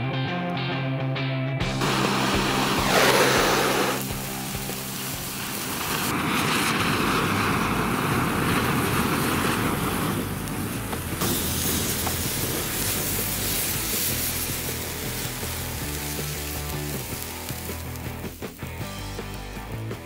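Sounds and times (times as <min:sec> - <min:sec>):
sparklers fizzing and crackling: 0:01.8 - 0:20.0.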